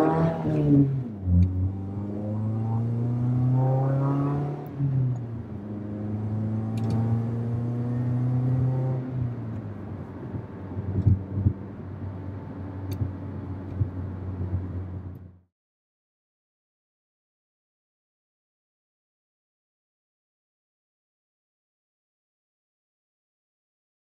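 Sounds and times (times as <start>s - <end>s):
car engine accelerating: 0.0s - 15.4s
road noise: 0.0s - 15.4s.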